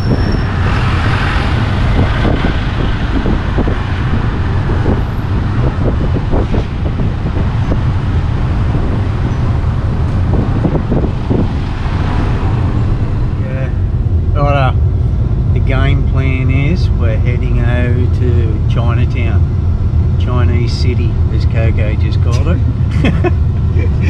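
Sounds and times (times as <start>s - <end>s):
car driving rumble: 0.0s - 24.0s
wind buffeting microphone: 0.0s - 24.0s.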